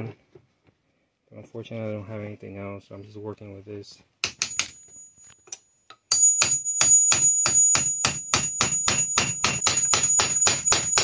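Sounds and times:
high metallic ring: 0:04.5 - 0:05.4, 0:06.1 - 0:11.0.

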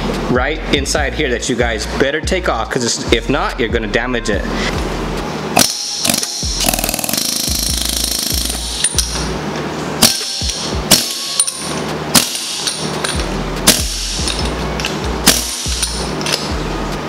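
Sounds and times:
pneumatic air hammer on steel: 0:05.6 - 0:09.3, 0:10.0 - 0:16.6.

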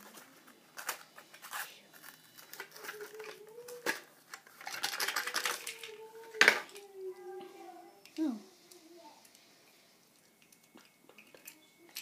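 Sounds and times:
packaging crackling and clicking: 0:00.0 - 0:06.9
packaging snapping: 0:00.0 - 0:06.9
faint wavering whine: 0:00.0 - 0:12.0.

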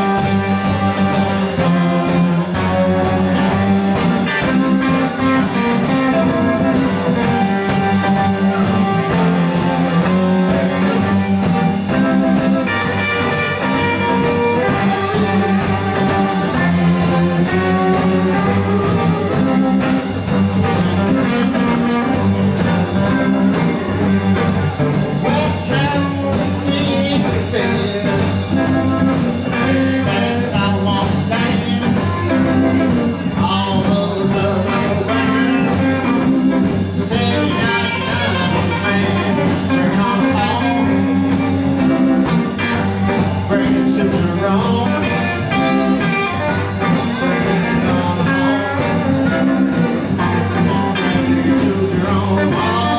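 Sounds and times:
electric blues band playing: 0:00.0 - 0:52.9
man singing: 0:25.2 - 0:52.9.

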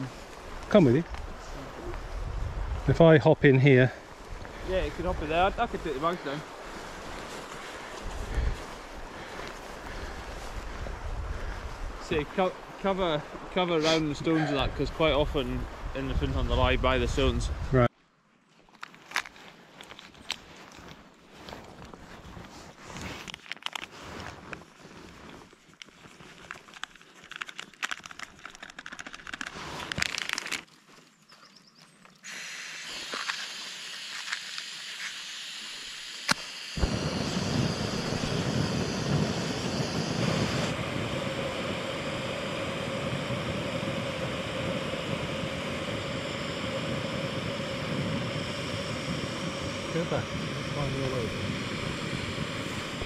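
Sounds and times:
sachet crinkling and rustling: 0:18.7 - 0:31.2
gas burner rushing: 0:32.3 - 0:53.0.

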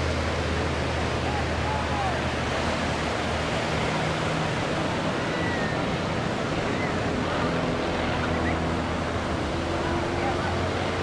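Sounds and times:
distant propeller plane drone: 0:00.0 - 0:11.0
surf rushing: 0:00.0 - 0:11.0.

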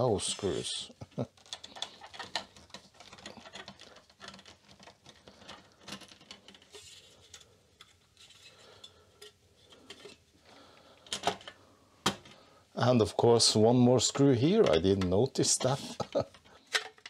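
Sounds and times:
faint clicks and metallic taps: 0:01.1 - 0:10.2.

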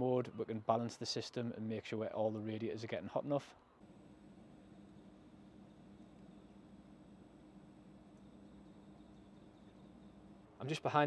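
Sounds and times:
heat pump humming: 0:03.8 - 0:11.0
thin high whine: 0:03.8 - 0:11.0.

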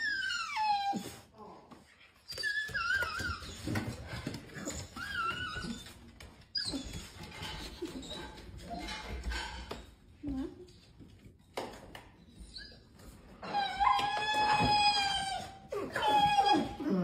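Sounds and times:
dog whining: 0:00.0 - 0:09.2, 0:12.2 - 0:17.0.

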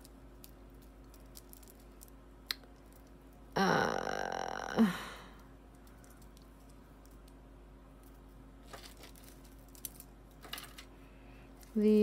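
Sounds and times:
woman's throaty vocal sound: 0:03.6 - 0:05.4.

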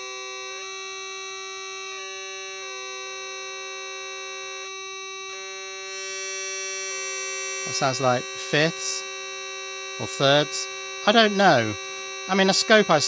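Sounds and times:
fixed-pitch buzzing tone: 0:00.0 - 0:13.0
buzzing tone stepping between pitches: 0:03.9 - 0:13.0.

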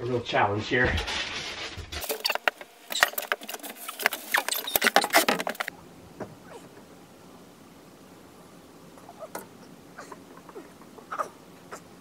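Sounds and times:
plywood sheet scraping: 0:00.7 - 0:05.7.

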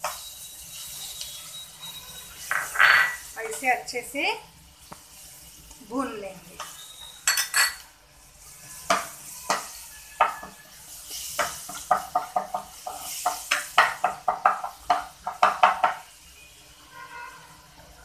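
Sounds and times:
spatula scraping pan: 0:00.0 - 0:03.7
garlic paste sizzling in oil: 0:00.0 - 0:18.0.

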